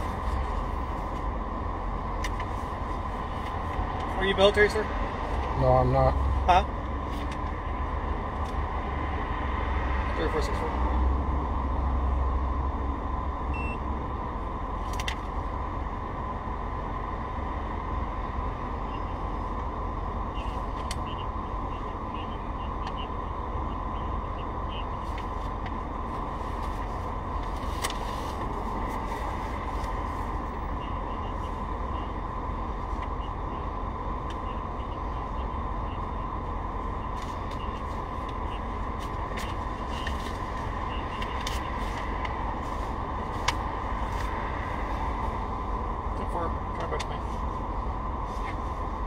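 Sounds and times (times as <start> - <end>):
road vehicle rumble: 0.0 - 49.0.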